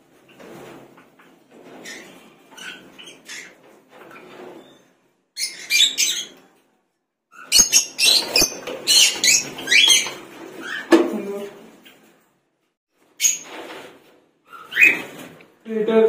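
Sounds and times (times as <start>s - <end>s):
lovebirds chirping and screeching: 1.7s - 6.5s, 7.3s - 11.0s, 13.1s - 13.6s, 14.4s - 15.3s.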